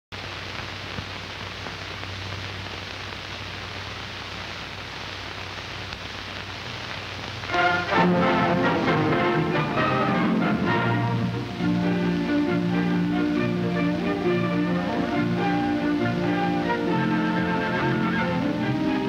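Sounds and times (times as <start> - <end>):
film soundtrack hiss: 0.1 - 19.0
loud music: 7.5 - 19.0.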